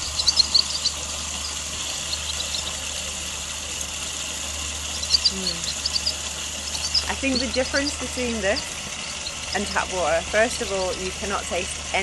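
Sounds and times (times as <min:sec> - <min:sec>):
high bird chirps: 0:00.0 - 0:02.8, 0:04.9 - 0:09.6
water running from spout: 0:00.0 - 0:12.0.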